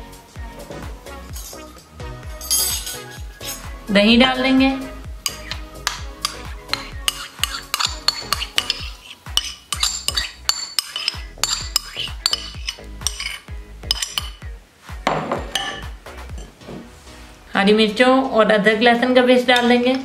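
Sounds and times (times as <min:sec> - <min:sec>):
spoon scraping a bowl: 0:01.3 - 0:01.8, 0:02.4 - 0:03.7, 0:05.2 - 0:14.4.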